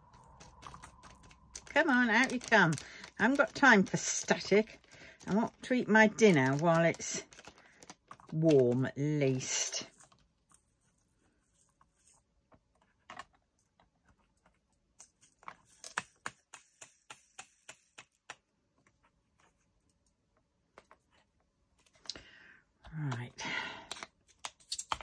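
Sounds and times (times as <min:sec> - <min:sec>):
plastic pots clicking: 0:00.0 - 0:09.1.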